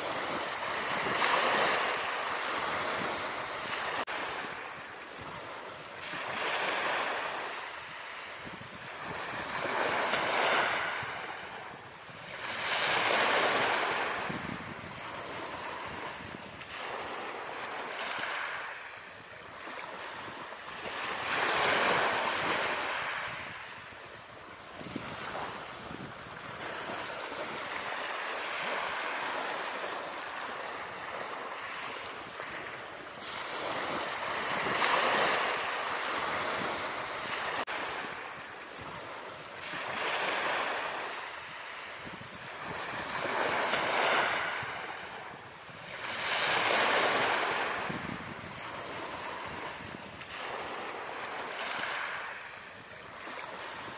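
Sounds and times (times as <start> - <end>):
ocean waves breaking: 0.0 - 53.9.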